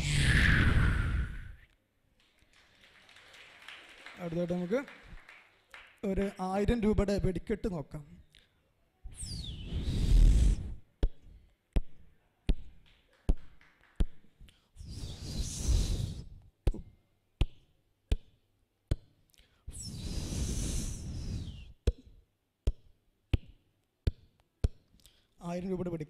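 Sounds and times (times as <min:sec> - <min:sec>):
vocal falling whistle: 0:00.0 - 0:01.6, 0:09.2 - 0:10.6
vocal hissing bursts: 0:09.2 - 0:10.8, 0:14.8 - 0:16.4, 0:19.7 - 0:21.8.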